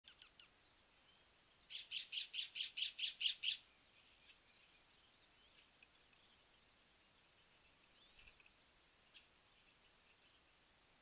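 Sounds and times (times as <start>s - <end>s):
bird calling: 1.1s - 4.8s.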